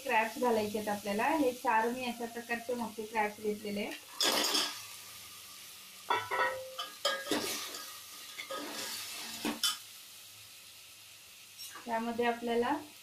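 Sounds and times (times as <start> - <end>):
low sizzle of frying: 0.0 - 13.0
metal ladle clanking and scraping: 6.1 - 9.8.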